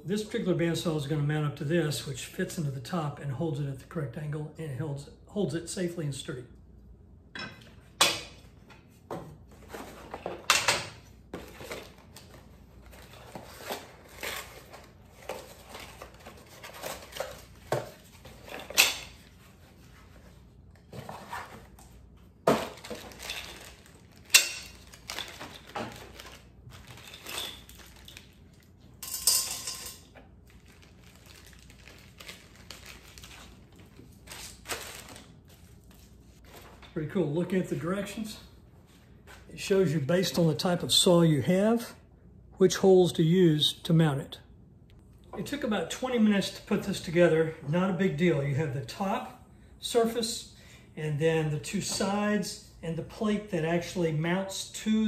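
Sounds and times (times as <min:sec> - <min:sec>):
plastic bag rustling: 0:22.5 - 0:28.8, 0:30.4 - 0:36.9.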